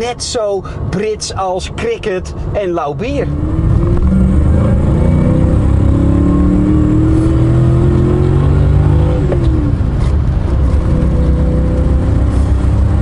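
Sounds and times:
car engine accelerating: 3.2s - 13.0s.

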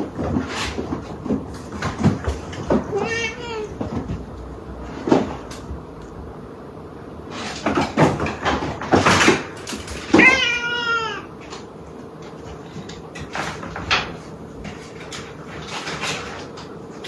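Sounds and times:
cat meowing: 2.8s - 3.8s, 10.1s - 11.3s.

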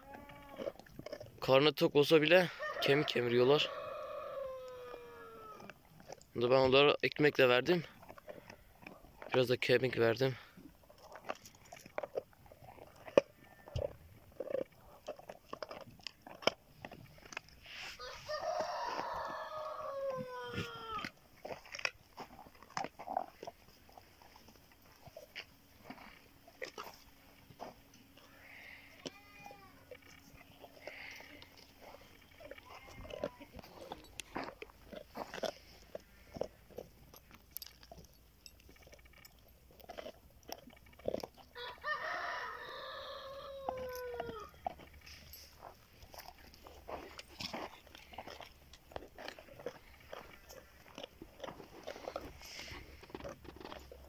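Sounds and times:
bones cracking and crunching: 0.0s - 1.4s, 3.7s - 29.1s, 29.7s - 54.0s
dogs gnawing bones: 0.0s - 54.0s
rooster crowing: 2.5s - 5.6s, 18.0s - 21.0s, 41.6s - 44.6s.

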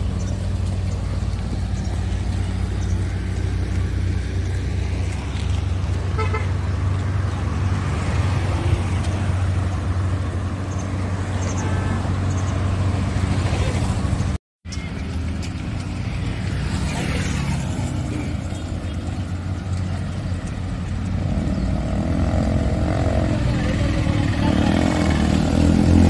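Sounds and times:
road noise: 0.0s - 26.0s
vehicle engine running: 0.0s - 26.0s
vehicle horn toot: 6.1s - 6.6s.

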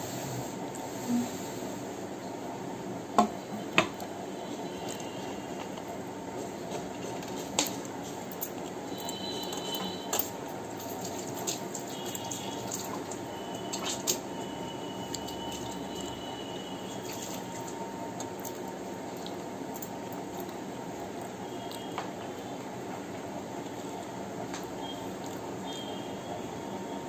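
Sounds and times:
person chewing and smacking: 16.9s - 22.7s, 23.6s - 25.8s.

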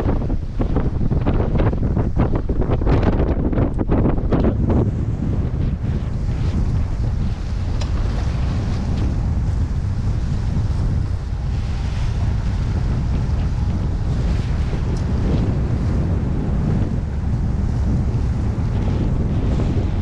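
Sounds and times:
water washing against pier: 0.0s - 20.0s
wind buffeting microphone: 0.0s - 20.0s.

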